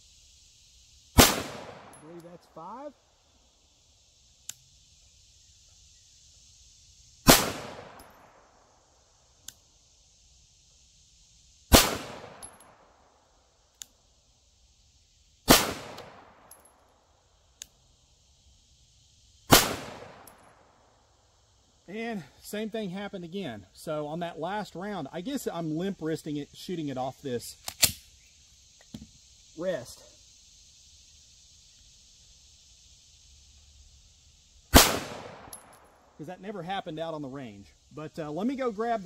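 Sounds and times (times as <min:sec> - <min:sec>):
pistol shots with echo: 0:01.2 - 0:02.0, 0:07.3 - 0:08.1, 0:11.7 - 0:12.5, 0:15.5 - 0:16.3, 0:19.5 - 0:20.4, 0:34.7 - 0:35.6
faint sharp ticks: 0:04.4 - 0:04.7, 0:09.4 - 0:09.7, 0:13.7 - 0:14.0, 0:17.5 - 0:17.8.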